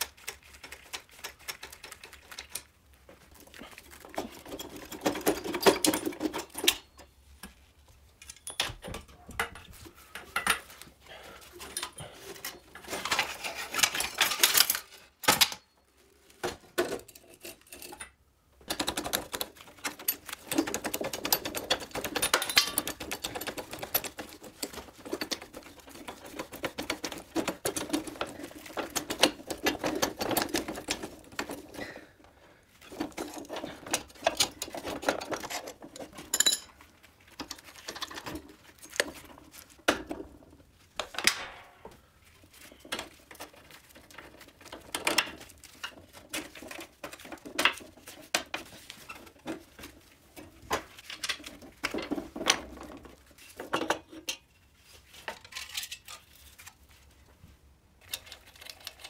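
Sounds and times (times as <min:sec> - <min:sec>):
metallic clicking of hand tools: 0:17.1 - 0:31.6.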